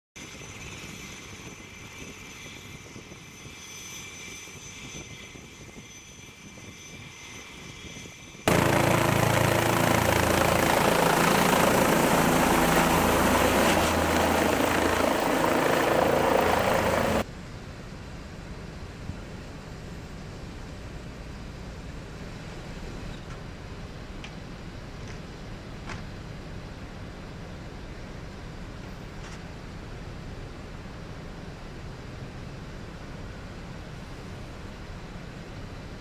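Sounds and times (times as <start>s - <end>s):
helicopter turbine whine: 0.2s - 17.3s
helicopter rotor thumping: 8.5s - 17.2s.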